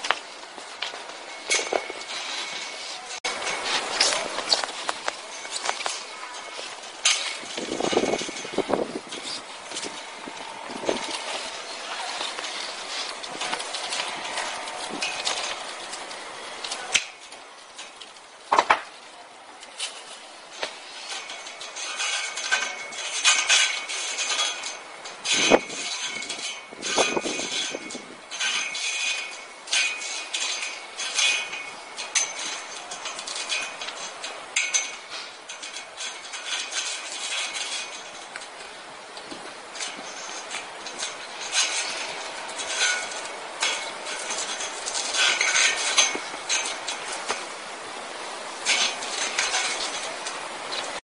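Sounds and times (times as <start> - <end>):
wire scraping and rustling: 0.0 - 51.0.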